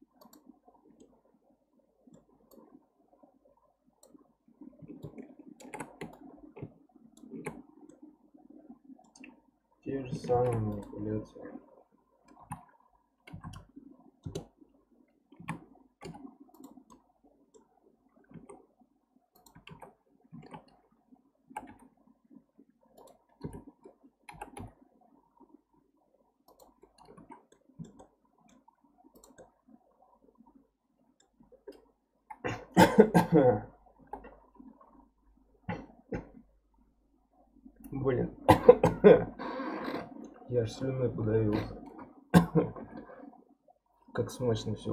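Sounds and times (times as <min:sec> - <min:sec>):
keyboard and mouse clicks: 0:00.1 - 0:01.2, 0:02.1 - 0:02.8, 0:04.8 - 0:08.0, 0:09.0 - 0:09.4, 0:10.2 - 0:11.0, 0:12.2 - 0:14.6, 0:15.3 - 0:18.7, 0:19.3 - 0:20.8, 0:21.5 - 0:21.9, 0:22.9 - 0:24.8, 0:26.4 - 0:29.6, 0:31.2 - 0:32.4.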